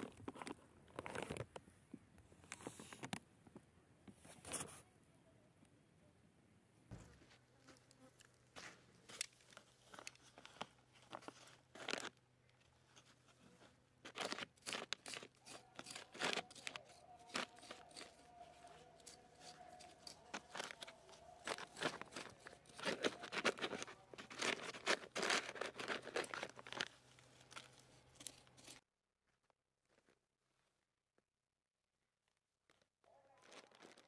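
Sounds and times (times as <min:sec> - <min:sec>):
plastic sack crinkling: 0:14.1 - 0:28.8, 0:33.4 - 0:34.0.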